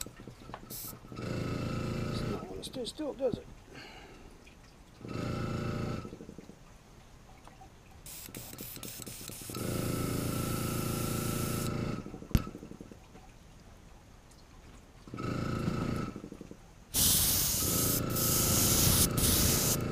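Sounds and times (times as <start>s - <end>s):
airbrush spraying paint: 0.7s - 1.0s, 8.1s - 9.6s, 10.9s - 11.7s, 17.0s - 19.9s
air compressor motor humming: 8.1s - 12.1s, 16.9s - 19.9s.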